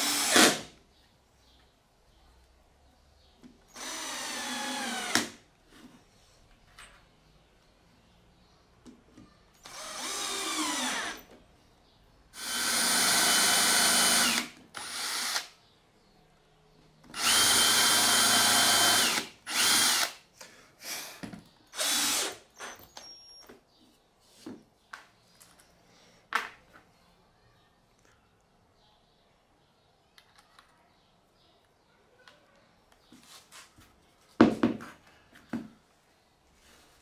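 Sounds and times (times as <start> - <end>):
cordless drill boring into wood: 0.0 - 0.6, 3.7 - 5.4, 9.6 - 11.2, 12.4 - 15.5, 17.1 - 20.2, 21.7 - 23.2.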